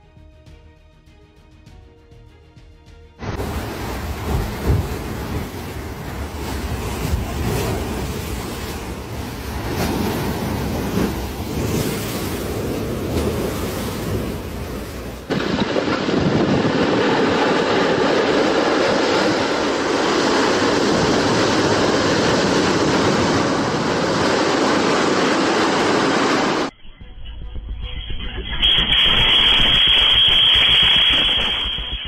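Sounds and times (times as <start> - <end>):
wind on microphone: 3.3 - 26.7.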